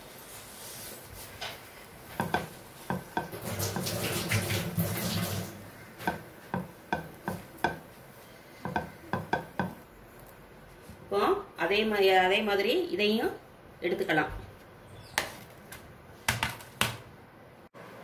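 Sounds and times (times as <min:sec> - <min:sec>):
rustling noise: 0:00.0 - 0:05.6.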